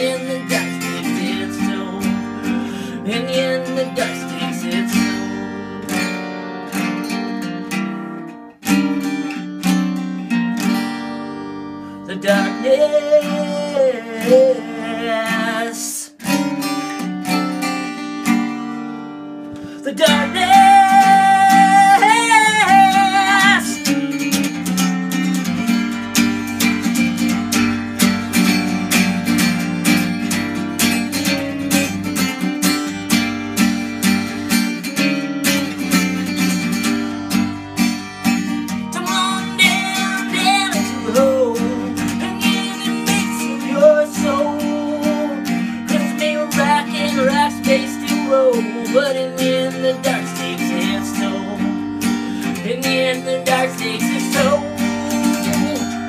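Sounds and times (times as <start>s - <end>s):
person singing: 0.0s - 6.1s, 11.9s - 16.2s, 19.6s - 24.0s, 38.5s - 56.0s
acoustic guitar strumming: 0.0s - 56.0s.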